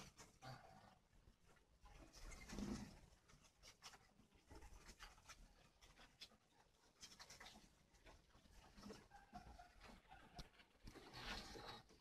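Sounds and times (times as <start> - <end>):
birds pecking and scratching soil: 0.0 - 12.0.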